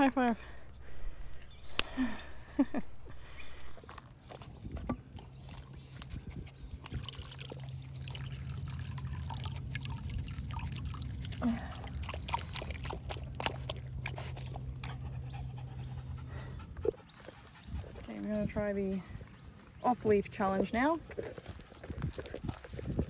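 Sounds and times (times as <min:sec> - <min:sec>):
steady low hum: 0:00.0 - 0:21.8
dog lapping water: 0:04.3 - 0:15.5
water trickling from bottle: 0:05.5 - 0:14.9.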